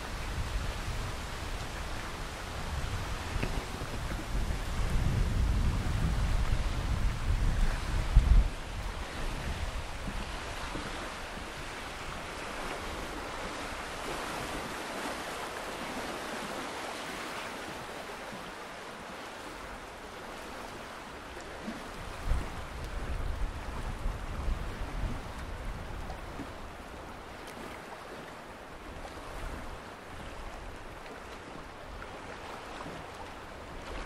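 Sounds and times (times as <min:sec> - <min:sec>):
wind buffeting microphone: 0:00.0 - 0:14.8, 0:21.7 - 0:27.3
wind rushing through trees: 0:00.0 - 0:34.0.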